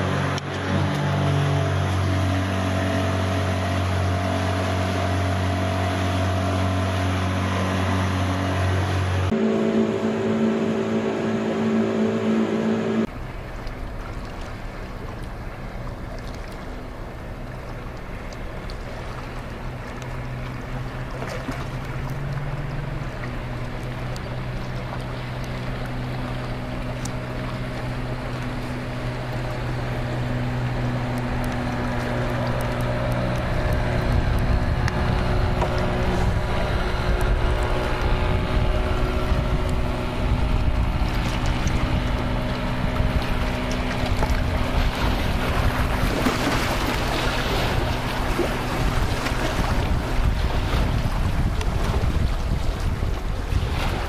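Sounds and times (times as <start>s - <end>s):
outboard motor drone: 0.0s - 54.0s
steady hum: 9.3s - 13.1s
wind rumbling on microphone: 21.4s - 54.0s.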